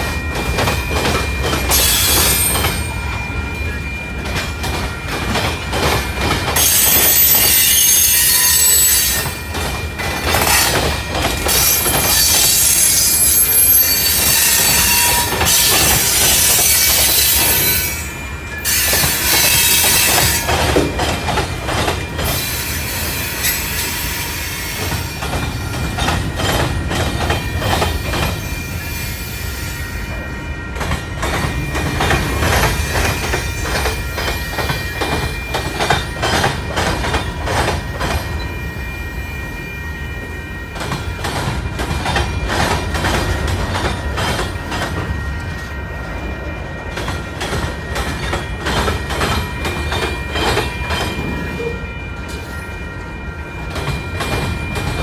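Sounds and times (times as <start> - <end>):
wheels clacking over rail joints: 0.0 - 24.0, 24.6 - 28.6, 40.7 - 46.2, 46.8 - 52.4
train cars rumbling past: 0.0 - 55.0
high wheel squeal: 0.9 - 4.0, 6.6 - 10.8, 11.4 - 20.8.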